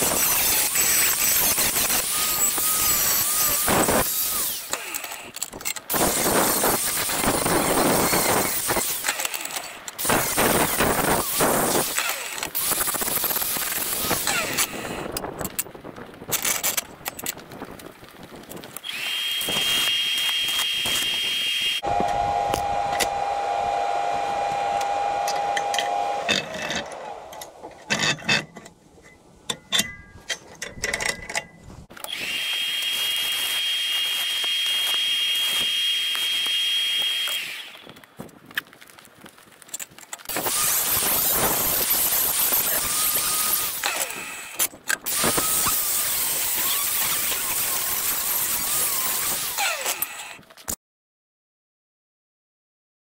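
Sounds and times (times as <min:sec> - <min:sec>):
welding arc crackle: 0:00.0 - 0:15.2, 0:17.4 - 0:21.8, 0:32.1 - 0:50.4
angle grinder grinding steel: 0:00.0 - 0:15.3, 0:18.8 - 0:28.5, 0:32.0 - 0:38.0, 0:40.3 - 0:50.5.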